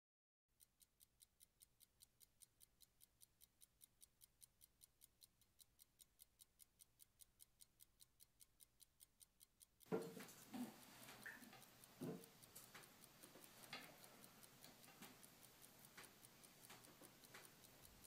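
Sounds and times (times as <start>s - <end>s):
faint even ticking: 0.6s - 18.0s.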